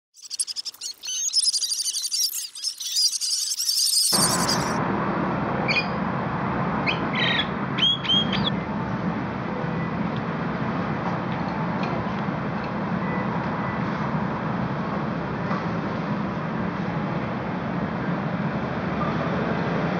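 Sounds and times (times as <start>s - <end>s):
many birds twittering: 0.1s - 4.8s
myna whistled calls: 0.1s - 4.8s.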